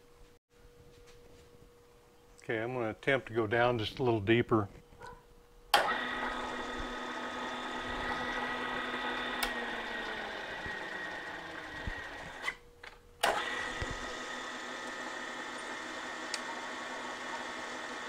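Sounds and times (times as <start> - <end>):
milling machine motor whining: 5.7 - 12.6, 13.2 - 18.0.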